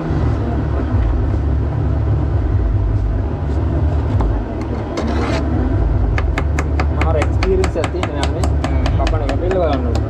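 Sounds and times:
low mechanical rumble: 0:00.0 - 0:10.0
knife tapping cutting board: 0:06.2 - 0:10.0.

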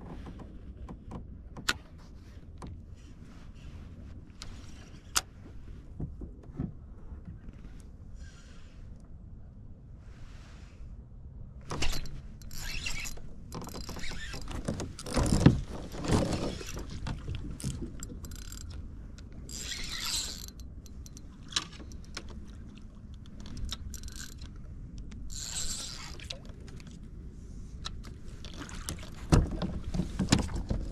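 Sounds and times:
fishing gear clattering: 0:11.7 - 0:18.8, 0:23.2 - 0:24.6.

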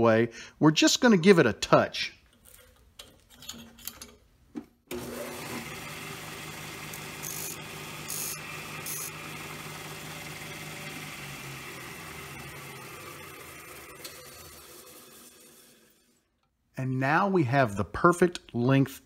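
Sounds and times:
disc sander motor humming: 0:04.9 - 0:16.0.

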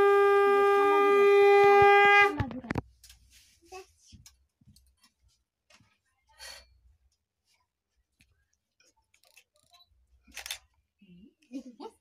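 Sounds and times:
soft rustle: 0:02.8 - 0:06.3.

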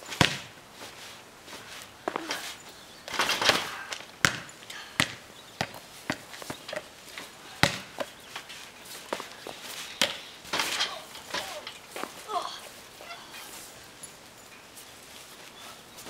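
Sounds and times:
trampoline springs knocking: 0:03.1 - 0:09.4, 0:10.0 - 0:12.2.

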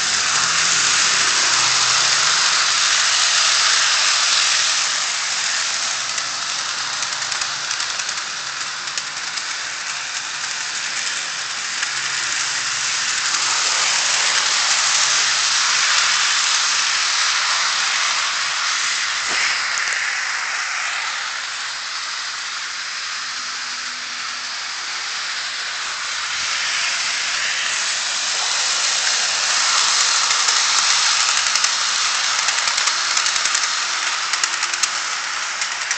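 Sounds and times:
model train rattling on track: 0:00.0 - 0:35.9.

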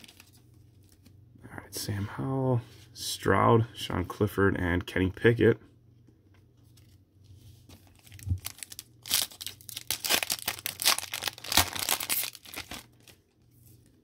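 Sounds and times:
foil pack tearing and crinkling: 0:07.9 - 0:13.2.

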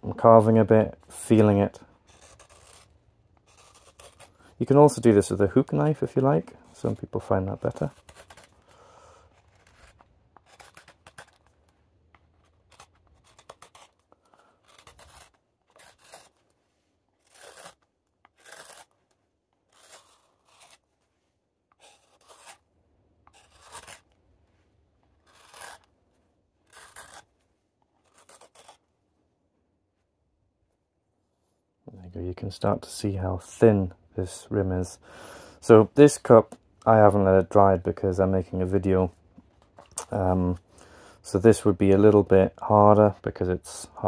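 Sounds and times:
knife cutting wood: 0:00.9 - 0:04.8, 0:05.8 - 0:11.6, 0:12.2 - 0:16.5, 0:17.2 - 0:20.9, 0:21.7 - 0:22.6, 0:23.2 - 0:24.2, 0:25.1 - 0:25.9, 0:26.6 - 0:27.3, 0:28.0 - 0:28.8.

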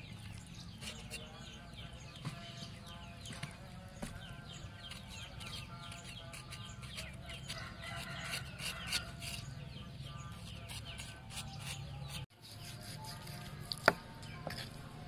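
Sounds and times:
knife scraping on wooden board: 0:00.7 - 0:01.6, 0:04.0 - 0:09.6, 0:10.2 - 0:15.0.

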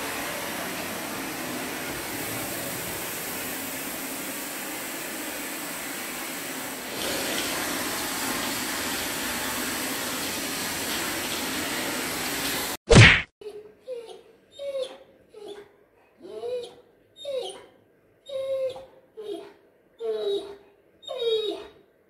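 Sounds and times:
vacuum cleaner running: 0:00.0 - 0:12.8.

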